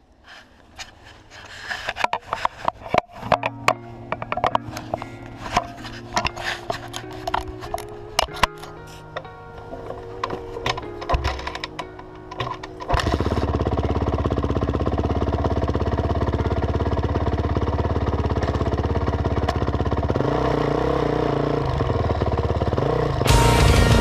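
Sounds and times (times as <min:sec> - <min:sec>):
dirt bike engine idling: 0:12.8 - 0:24.0
loud music: 0:23.3 - 0:24.0.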